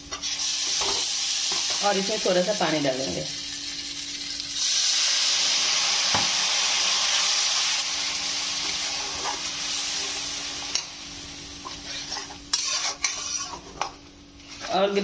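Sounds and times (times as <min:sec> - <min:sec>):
loud sizzle in hot pan: 0:00.0 - 0:13.6
metal spatula stirring: 0:11.6 - 0:14.8.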